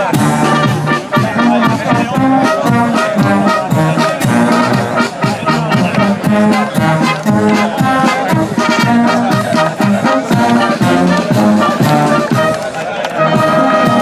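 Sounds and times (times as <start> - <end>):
brass music over steady beat: 0.0 - 14.0.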